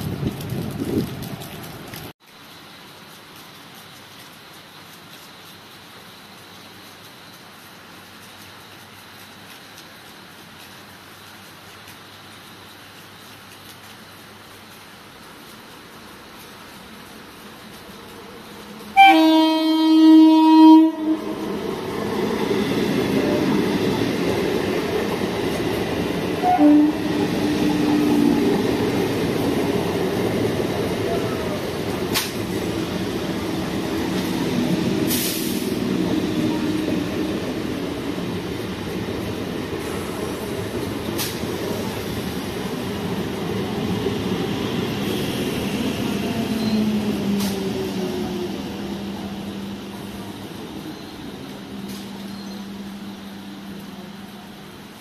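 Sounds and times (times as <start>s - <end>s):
train wheels rumbling on rails: 0.0s - 2.1s, 3.4s - 55.0s
train horn blaring: 18.9s - 21.6s, 26.4s - 28.6s.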